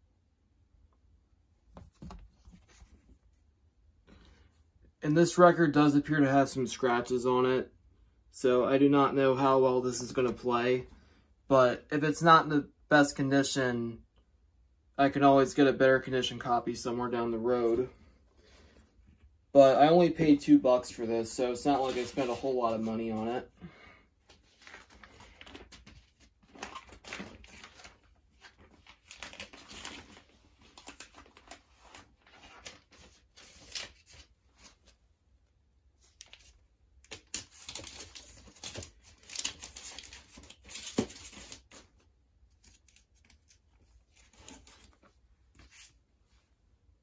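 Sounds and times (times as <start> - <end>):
paper and cardboard rustling: 1.7 - 3.4, 20.9 - 23.4, 24.3 - 35.0, 36.0 - 46.5.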